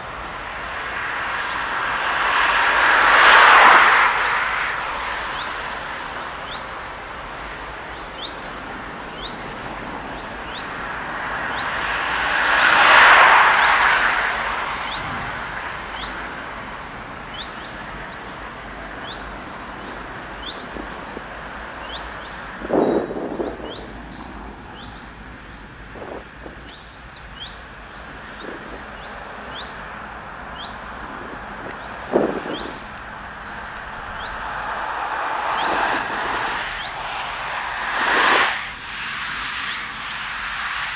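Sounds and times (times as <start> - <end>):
steady rushing noise: 0.0 - 40.9
traffic noise: 0.0 - 40.9
vehicle approaching: 0.0 - 40.9
rising bird chirps: 19.0 - 40.0.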